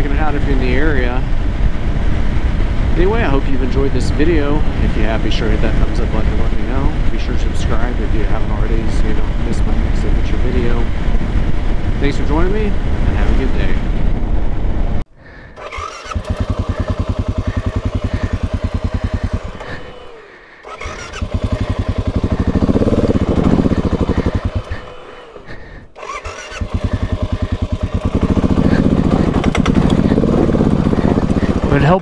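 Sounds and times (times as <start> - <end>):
motorcycle engine running and revving: 0.0 - 14.4, 15.6 - 32.0.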